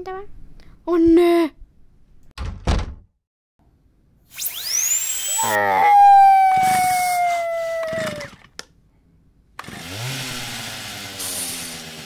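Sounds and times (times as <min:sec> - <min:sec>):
whistle tone sliding down: 0:04.3 - 0:08.3
buzzing motor-like drone: 0:09.6 - 0:12.0.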